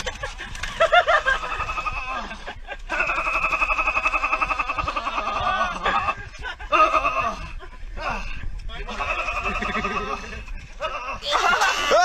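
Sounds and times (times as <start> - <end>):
man laughing: 0.0 - 8.3, 8.9 - 12.0.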